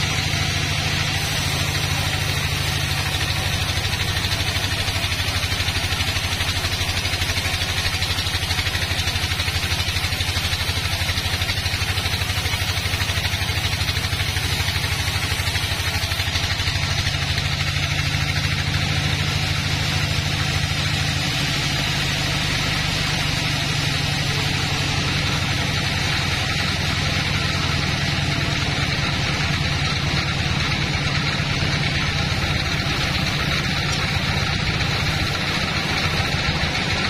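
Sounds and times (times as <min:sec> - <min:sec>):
band saw blade cutting log: 0:00.0 - 0:37.0
low motor hum: 0:00.0 - 0:37.0.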